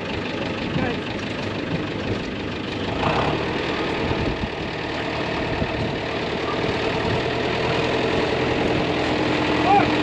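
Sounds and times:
strong wind buffeting microphone: 4.0s - 4.7s, 5.4s - 6.2s.

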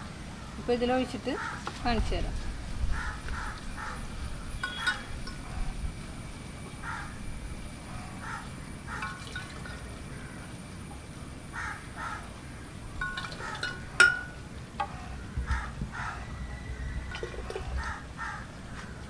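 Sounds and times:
ladle clinking against glass jug: 4.6s - 5.4s, 9.0s - 9.8s, 13.0s - 14.4s, 17.1s - 17.7s.

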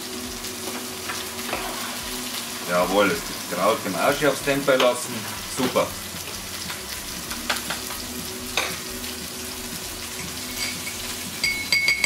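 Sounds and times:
duck breast sizzling in a pan: 0.0s - 12.0s
spoon clinking on pans: 10.5s - 12.0s.

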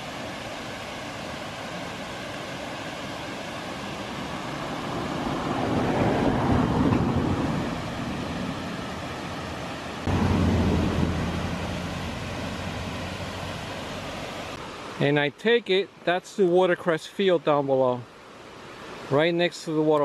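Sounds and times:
waterfall rushing: 0.0s - 15.2s
low hum: 10.0s - 14.6s.

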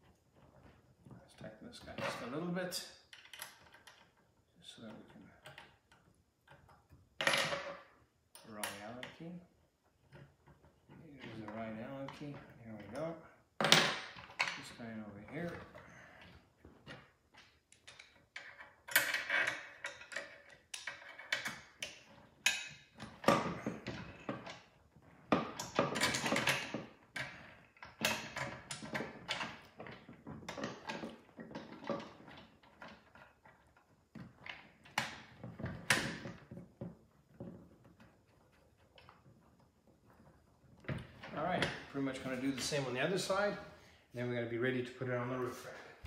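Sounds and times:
metal parts clicking and knocking: 15.4s - 41.8s.

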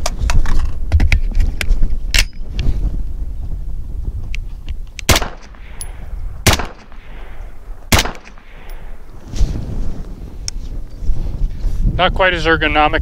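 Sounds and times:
rifle shots: 5.0s - 9.2s.

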